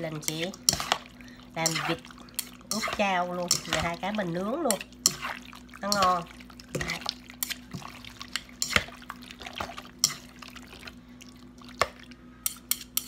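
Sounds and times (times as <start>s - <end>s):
wet squelching of stirring: 0.0s - 13.0s
utensils clicking against bowl: 1.6s - 4.0s.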